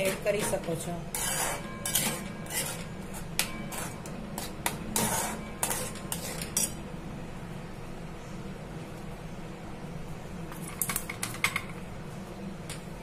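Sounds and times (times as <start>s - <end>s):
spoon scraping metal pot: 0.0s - 6.8s.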